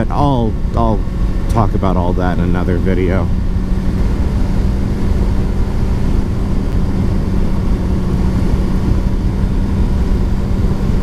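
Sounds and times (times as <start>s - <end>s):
motorcycle engine cruising: 0.0s - 11.0s.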